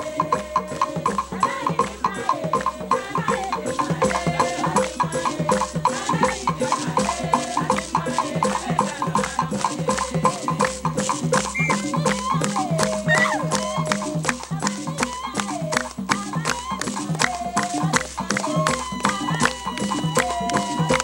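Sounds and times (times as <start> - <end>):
melodic line: 11.6 - 12.1.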